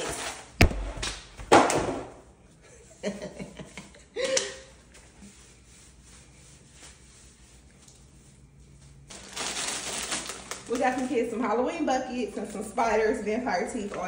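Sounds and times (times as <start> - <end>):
woman chuckling: 2.6 - 4.8.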